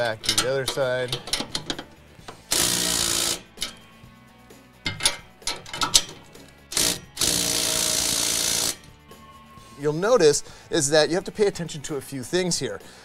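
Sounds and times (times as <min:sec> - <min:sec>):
metal clicks: 0:00.0 - 0:02.7, 0:03.4 - 0:03.9, 0:04.8 - 0:07.0
impact wrench running: 0:02.3 - 0:03.8, 0:04.9 - 0:08.9.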